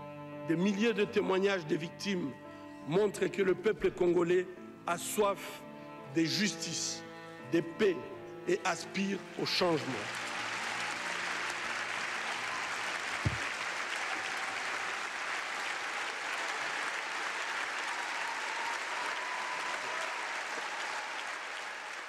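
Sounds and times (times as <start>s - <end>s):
audience applauding: 9.2s - 22.0s
low thump: 13.2s - 13.5s.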